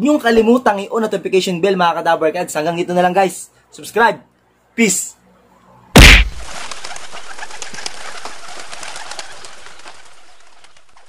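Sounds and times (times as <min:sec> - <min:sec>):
sudden loud burst: 0:06.0 - 0:06.5.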